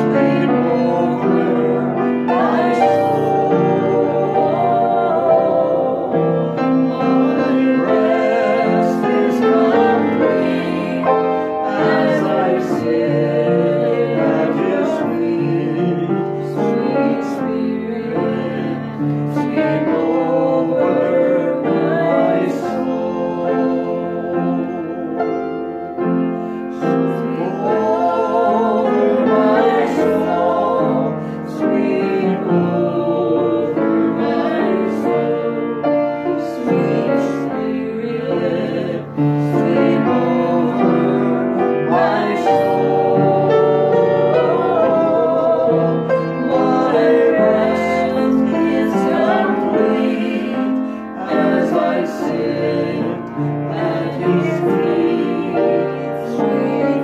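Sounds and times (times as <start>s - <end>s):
man and woman singing: 0.0s - 25.6s, 26.7s - 57.0s
piano accompaniment: 0.0s - 57.0s.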